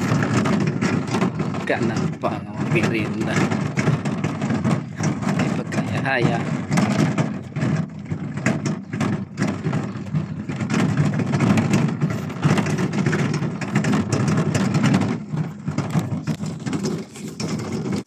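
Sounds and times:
wheelbarrow rumbling over concrete: 0.0 - 18.0.

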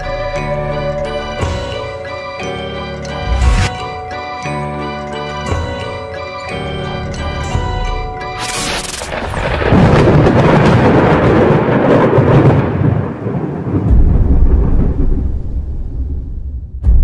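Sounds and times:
music: 0.0 - 9.2
thunder crack and rumble: 9.1 - 17.0
deep low boom: 13.7 - 17.0.

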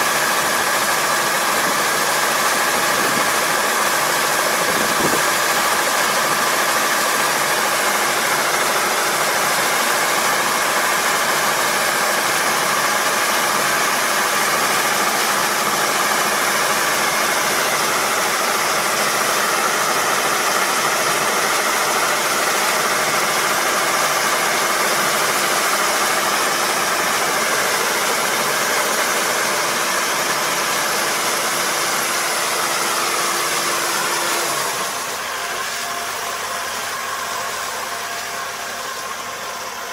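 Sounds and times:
combine harvester engine droning: 0.0 - 39.9.

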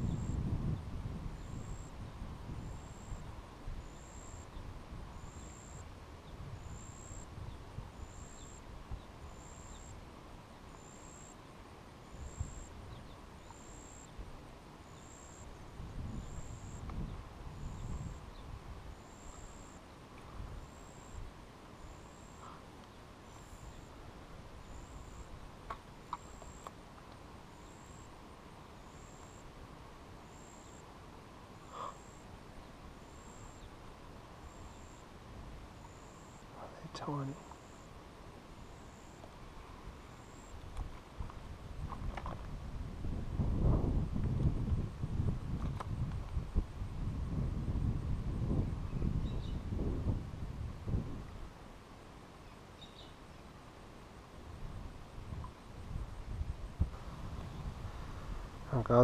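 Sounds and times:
wind buffeting microphone: 0.0 - 3.9, 15.6 - 19.0, 40.6 - 51.5, 54.4 - 59.0.

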